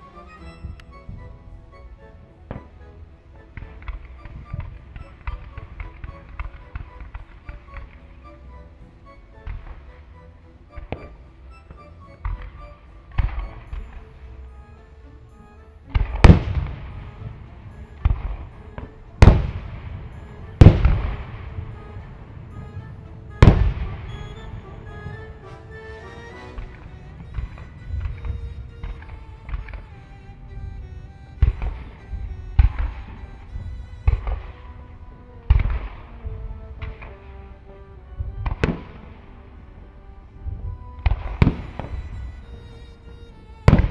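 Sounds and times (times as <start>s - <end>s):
background music: 0.0s - 43.9s
fireworks bangs: 18.0s - 30.1s, 31.3s - 34.7s, 40.5s - 42.4s, 43.7s - 43.9s.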